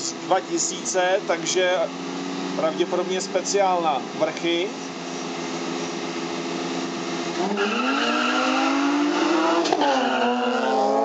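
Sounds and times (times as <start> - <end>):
car engines revving: 0.0 - 11.0
tyres squealing: 7.5 - 11.0.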